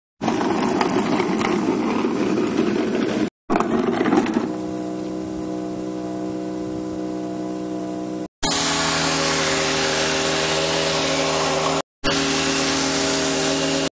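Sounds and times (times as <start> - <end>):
wheeled bin rolling on concrete: 0.2 - 4.6
steady machine hum: 3.5 - 13.9.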